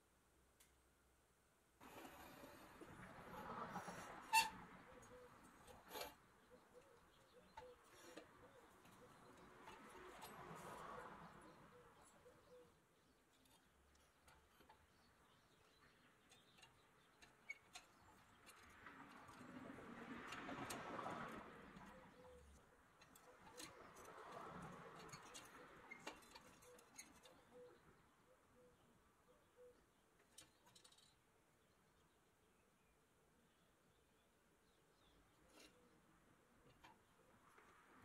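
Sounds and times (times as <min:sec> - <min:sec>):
soft metal scraping: 0:01.8 - 0:11.6.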